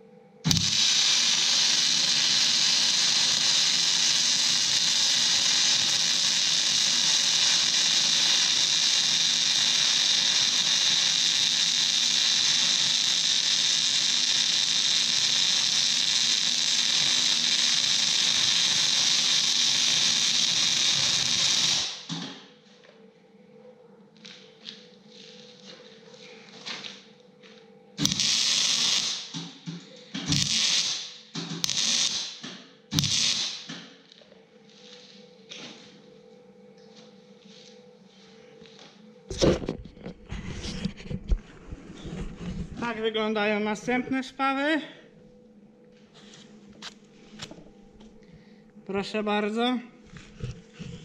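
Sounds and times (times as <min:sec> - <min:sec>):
arc welding hiss: 0:00.4 - 0:22.3, 0:28.0 - 0:29.6, 0:30.2 - 0:33.8.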